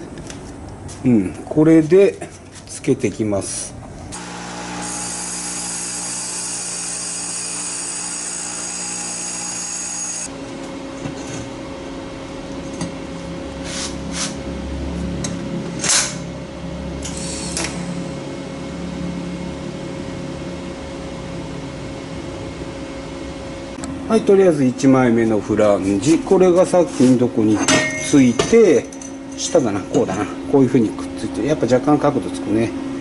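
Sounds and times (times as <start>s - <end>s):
welder electrical buzz and hiss: 4.2s - 10.3s.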